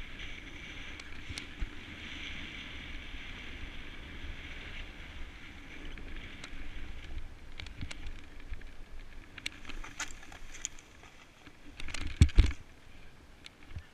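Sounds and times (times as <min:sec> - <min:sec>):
snowboard scraping over snow: 0:00.0 - 0:08.9
snow crunching: 0:00.0 - 0:11.8
wind rumble on microphone: 0:00.0 - 0:13.9.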